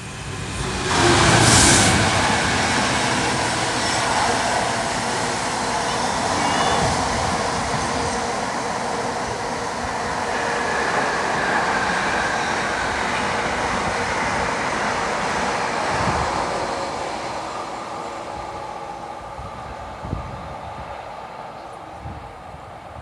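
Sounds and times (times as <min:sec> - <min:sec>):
freight train wagons rolling on rails: 0:00.0 - 0:11.9.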